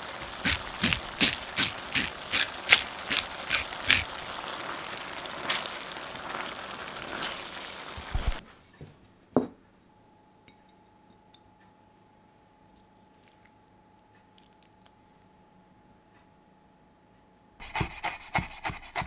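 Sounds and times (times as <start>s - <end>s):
curry sizzling in a pan: 0.0s - 8.4s
bowl knocking on wooden table: 9.4s - 9.6s.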